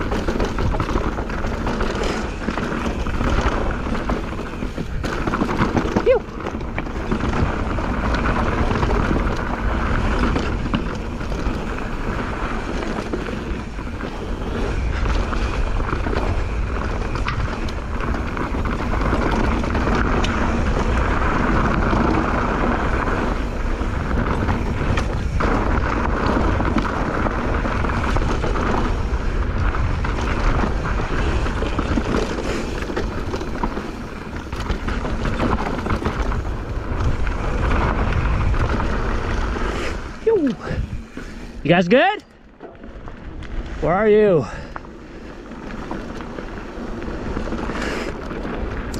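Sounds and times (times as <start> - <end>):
wind buffeting microphone: 0.0 - 41.8
bike rattling and clicking: 0.0 - 48.9
tyres rolling on dirt and rock: 0.0 - 48.9.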